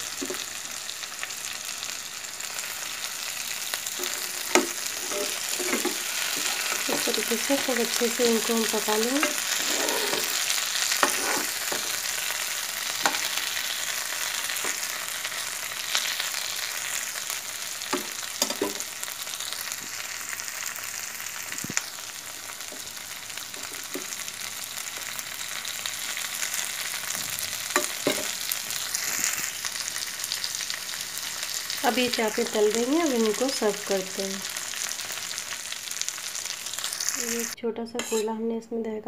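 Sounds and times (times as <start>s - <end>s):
meat sizzling in oil: 0.0s - 38.3s
metal spatula scraping pan: 4.0s - 12.2s, 38.0s - 38.3s.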